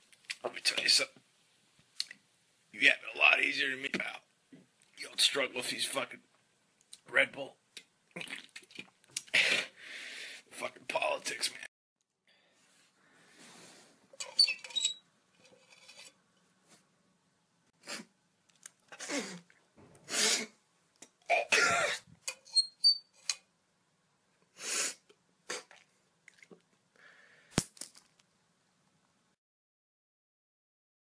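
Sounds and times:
person breathing hard: 0:09.3 - 0:10.5, 0:27.0 - 0:27.6
person sneezing: 0:20.1 - 0:20.6, 0:21.3 - 0:22.1, 0:24.6 - 0:25.8
person coughing: 0:21.3 - 0:22.1.

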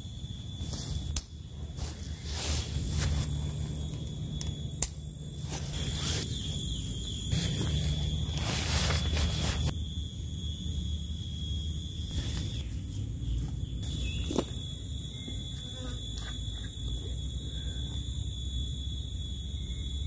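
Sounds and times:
faint high whine: 0:00.0 - 0:20.0
nylon fabric rustling: 0:07.8 - 0:09.7.

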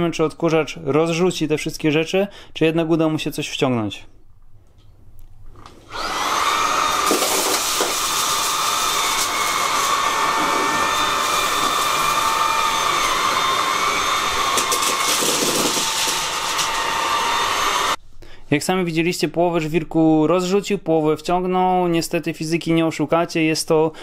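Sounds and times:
vacuum cleaner whining: 0:05.8 - 0:18.0.

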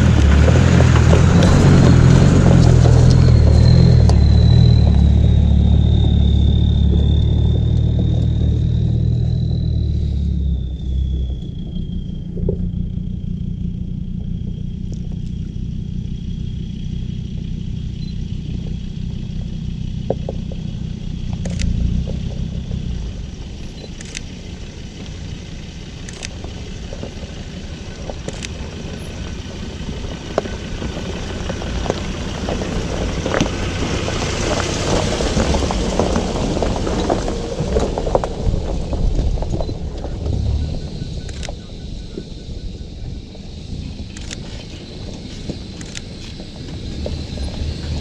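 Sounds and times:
tyres crunching over loose rocks: 0:00.0 - 0:09.6, 0:18.5 - 0:42.4
truck engine rumble: 0:00.0 - 0:48.0.

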